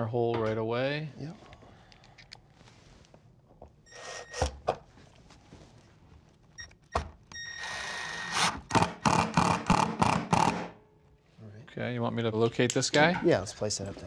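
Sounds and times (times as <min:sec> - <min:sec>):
impact driver driving a screw: 0:07.6 - 0:10.7.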